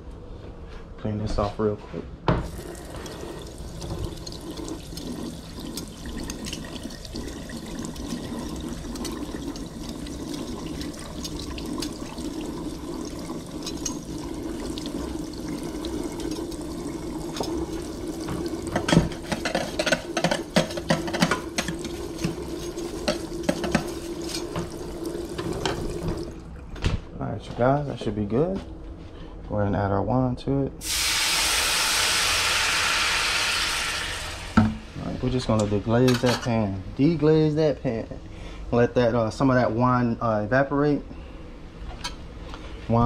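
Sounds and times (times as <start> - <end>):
faucet spraying water into sink: 2.4 - 26.4, 30.8 - 34.8.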